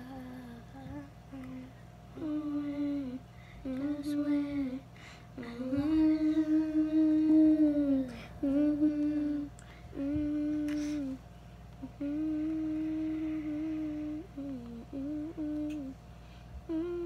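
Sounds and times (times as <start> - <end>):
girl humming: 0.0 - 4.8, 5.4 - 11.2, 11.8 - 16.0, 16.7 - 17.0.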